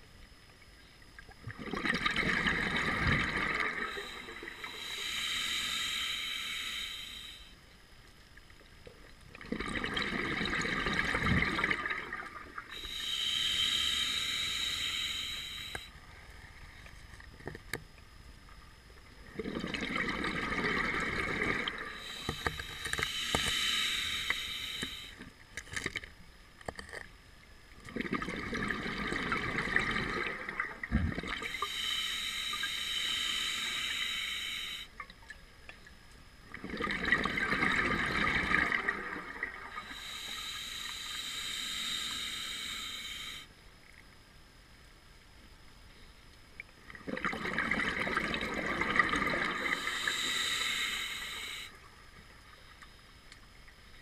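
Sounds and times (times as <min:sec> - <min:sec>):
exhaled bubbles gushing: 0:01.4 - 0:04.6, 0:09.3 - 0:12.7, 0:19.2 - 0:22.1, 0:27.9 - 0:31.6, 0:36.5 - 0:39.8, 0:46.9 - 0:49.9
air hissing through regulator: 0:02.8 - 0:07.7, 0:12.6 - 0:16.0, 0:21.0 - 0:25.4, 0:31.4 - 0:35.0, 0:39.6 - 0:43.6, 0:49.4 - 0:51.9.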